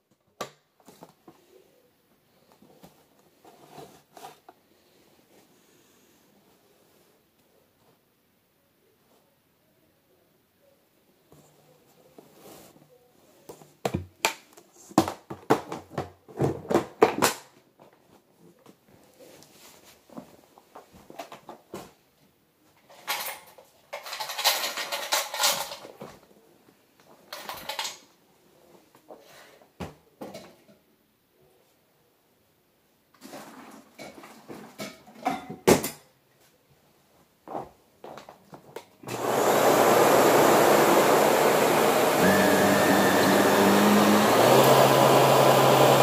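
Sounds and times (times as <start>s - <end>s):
plastic parts clicking and knocking: 22.9s - 26.0s.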